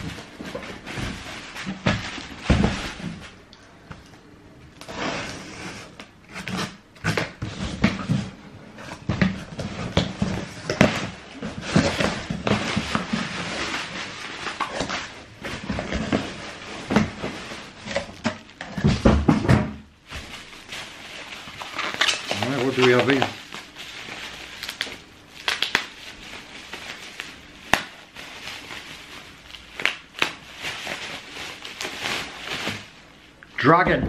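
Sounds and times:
paper and plastic crinkling: 0.0s - 3.5s, 4.8s - 19.2s, 20.0s - 34.0s.

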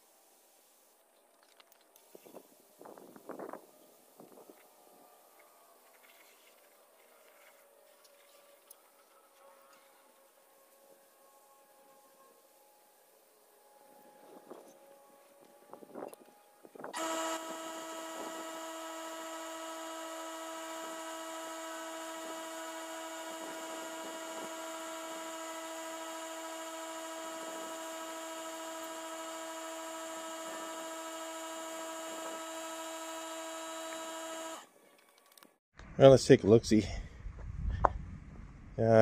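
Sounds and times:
air compressor running: 16.9s - 34.7s.

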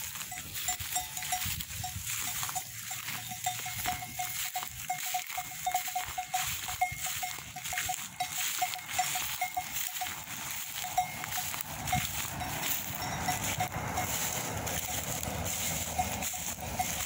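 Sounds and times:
sheep bells clinking: 0.0s - 17.0s.

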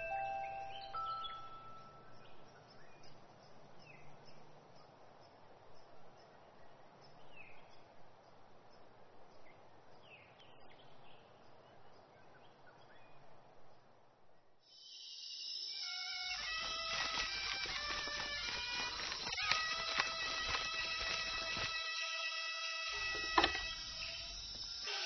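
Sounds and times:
falling bird chirps: 14.7s - 25.0s.

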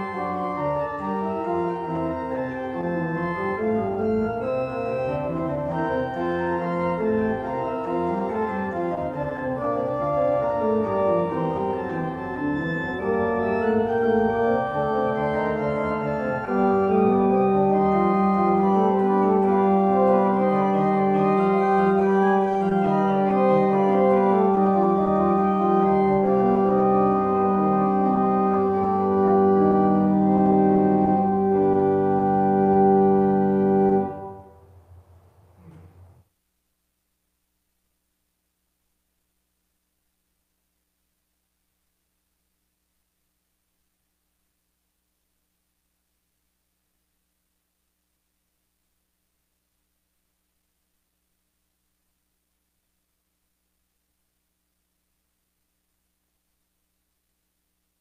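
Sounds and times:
organ music: 0.0s - 34.8s.

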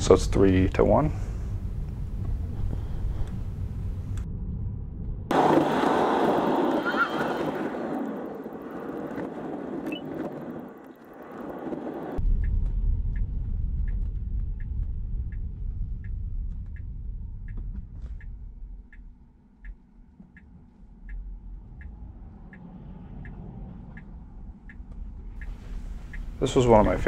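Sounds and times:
low rumble: 0.0s - 27.0s
turn signal ticking: 13.9s - 27.0s.

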